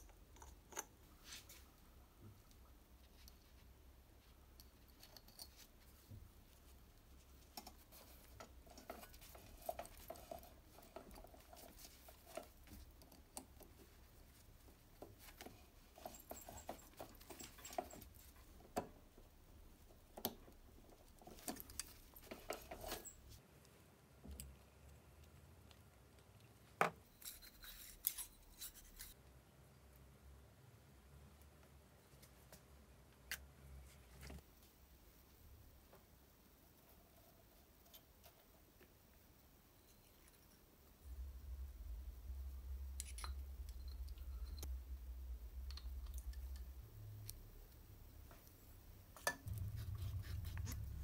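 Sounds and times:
small metal clicks and scrapes: 7.4s - 14.0s, 20.2s - 23.4s, 42.6s - 44.8s, 45.4s - 51.0s.

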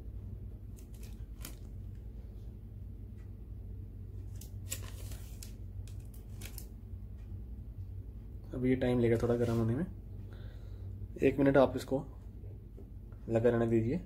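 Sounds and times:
steady low hum: 0.0s - 14.0s
light clicks and rustles of handling: 4.1s - 6.8s.

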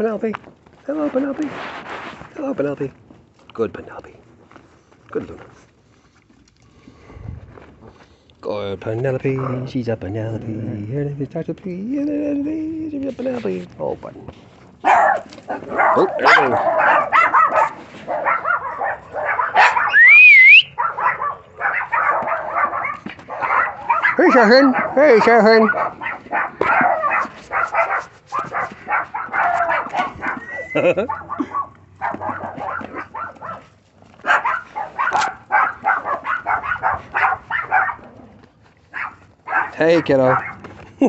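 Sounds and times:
puppies yipping: 14.8s - 38.1s, 38.9s - 40.7s
dog whining: 14.9s - 33.7s.

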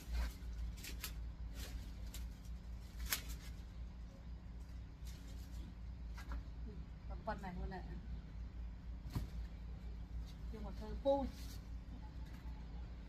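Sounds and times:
plants crackling and snapping: 0.0s - 4.0s
vines and dry leaves rustling: 0.0s - 6.6s, 8.9s - 13.0s
steady low hum: 0.0s - 13.0s.

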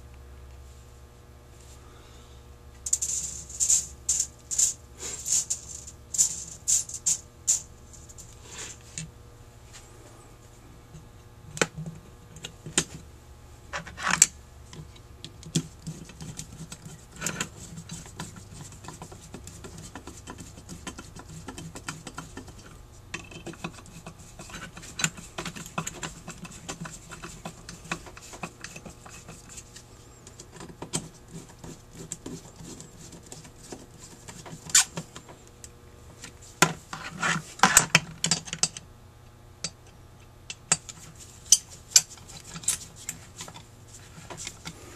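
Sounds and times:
small metal clicks and scrapes: 2.8s - 9.0s, 13.8s - 35.2s, 40.6s - 44.8s.

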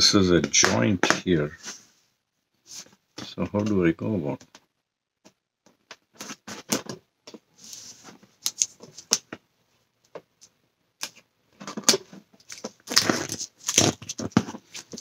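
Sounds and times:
plastic film crinkling: 12.4s - 15.0s.

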